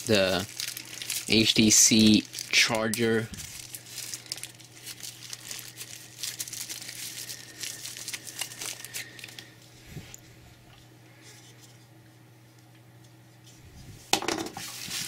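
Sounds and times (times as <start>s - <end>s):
plastic wrapping crinkling: 0.0s - 9.7s, 14.6s - 15.0s.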